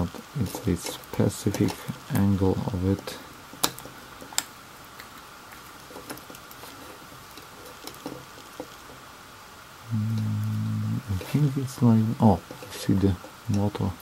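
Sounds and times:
plastic parts clicking: 0:00.1 - 0:02.3, 0:03.6 - 0:09.0.

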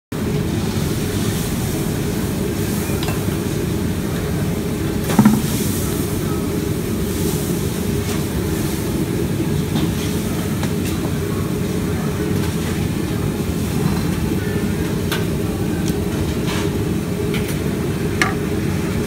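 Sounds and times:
loud metal clank: 0:05.2 - 0:05.6.

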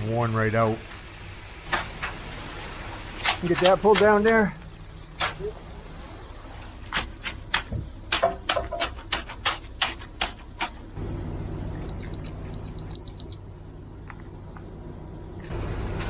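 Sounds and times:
short high beeps: 0:11.9 - 0:13.4.

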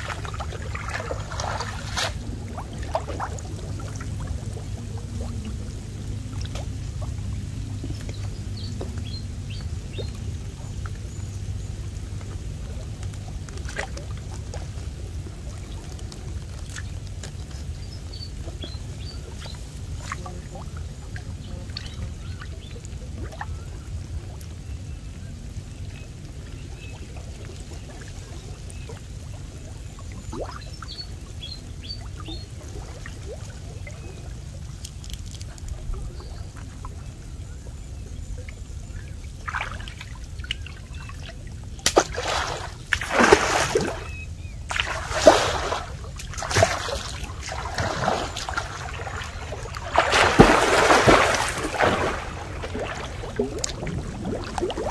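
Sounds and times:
splashing of person wading: 0:00.0 - 0:08.2, 0:39.4 - 0:54.9
water dripping and trickling: 0:00.0 - 0:37.4, 0:38.1 - 0:54.9
low steady rumble: 0:00.0 - 0:54.9.

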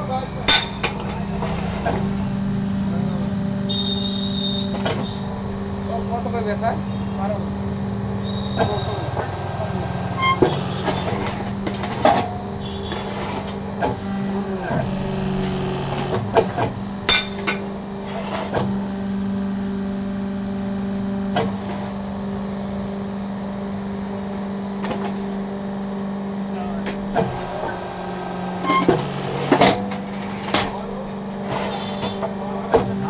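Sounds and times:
electric motor humming: 0:08.7 - 0:17.1, 0:27.0 - 0:30.6.

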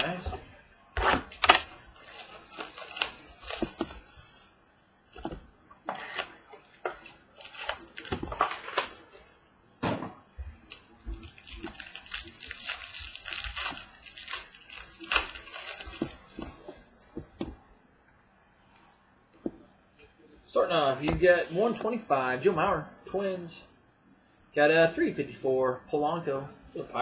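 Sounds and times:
wrapper and cardboard crinkling: 0:00.0 - 0:04.3, 0:05.2 - 0:09.0, 0:10.7 - 0:16.7.

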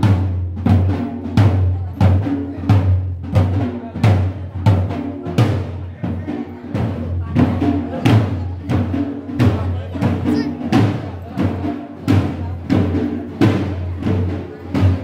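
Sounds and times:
dhol drum beaten in rhythm: 0:00.0 - 0:15.0.

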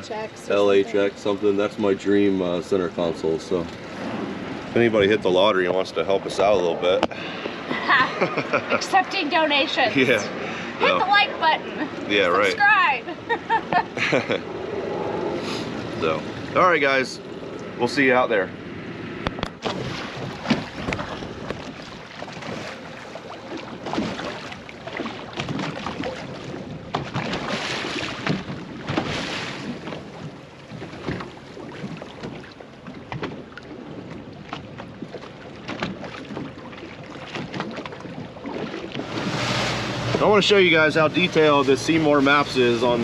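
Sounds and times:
water slapping against hull: 0:00.0 - 0:18.2, 0:18.8 - 0:43.0
wind buffeting microphone: 0:13.7 - 0:22.9.

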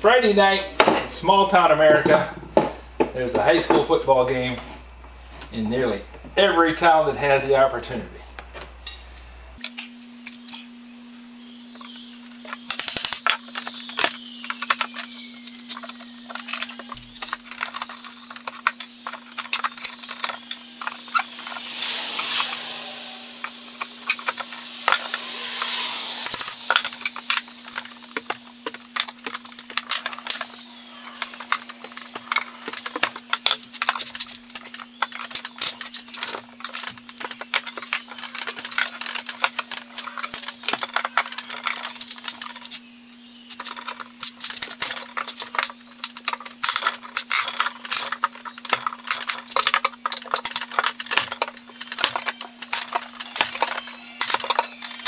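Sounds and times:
steady low hum: 0:00.0 - 0:55.0
hand tool clicking and scraping metal: 0:12.5 - 0:42.8, 0:43.5 - 0:55.0.

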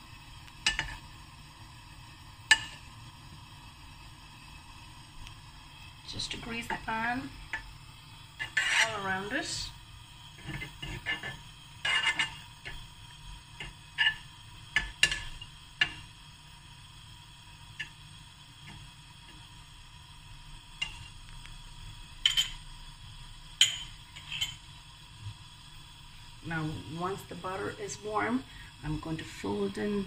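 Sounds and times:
butter faintly sizzling: 0:00.0 - 0:30.0
fork scraping frying pan: 0:00.6 - 0:01.0, 0:08.4 - 0:09.3, 0:10.4 - 0:12.8, 0:13.6 - 0:16.0, 0:23.6 - 0:24.6.

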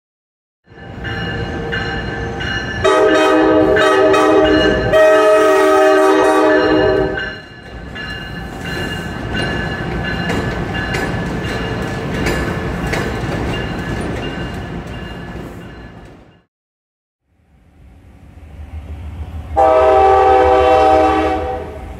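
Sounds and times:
moving train rumble: 0:00.7 - 0:16.5, 0:17.3 - 0:21.9
train air horn chord: 0:02.8 - 0:07.2, 0:19.6 - 0:21.9.

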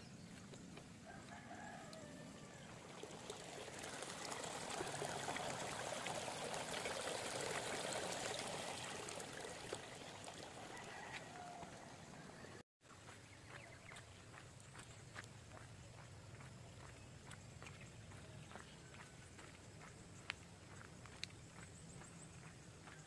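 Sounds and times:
running water: 0:02.3 - 0:12.6.

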